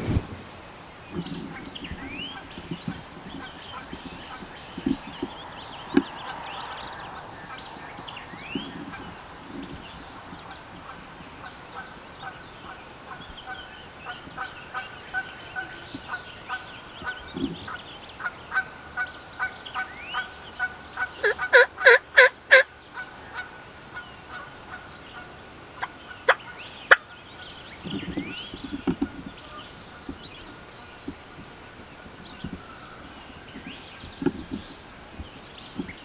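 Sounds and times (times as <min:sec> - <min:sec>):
songbirds singing: 0:00.6 - 0:36.0
turkey gobbling: 0:13.5 - 0:23.5, 0:24.3 - 0:27.2.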